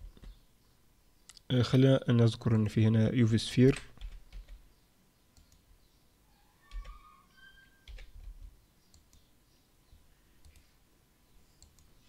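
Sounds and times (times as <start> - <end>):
keyboard and mouse clicks: 5.4 - 5.6, 6.7 - 7.0, 7.8 - 9.3, 10.4 - 10.7, 11.6 - 11.9.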